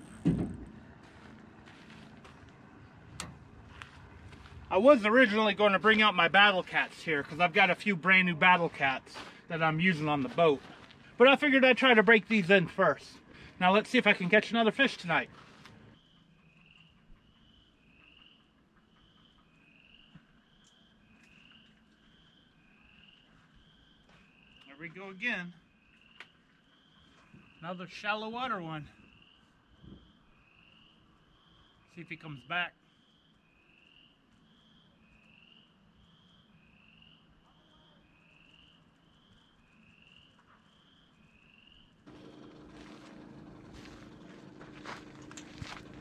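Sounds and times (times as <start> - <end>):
frogs or insects calling: 3.8 - 42.0.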